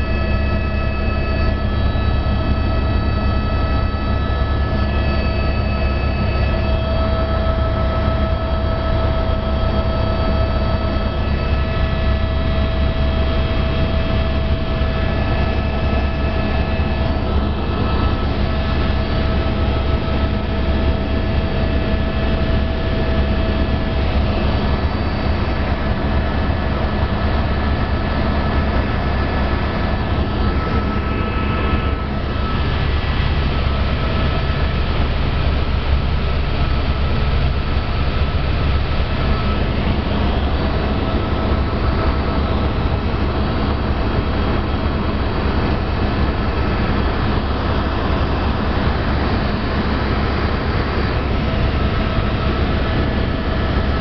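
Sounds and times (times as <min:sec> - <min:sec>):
high whining tones: 0:00.0 - 0:25.8, 0:28.4 - 0:34.6
helicopter rotor and engine drone: 0:00.0 - 0:54.0.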